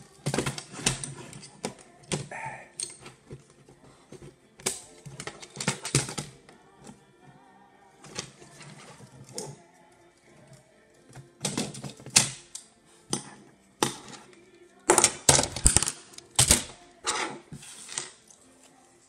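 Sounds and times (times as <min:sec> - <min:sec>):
faint background music: 0:00.0 - 0:19.0
plastic and metal parts clicking: 0:00.2 - 0:06.9, 0:14.9 - 0:16.8.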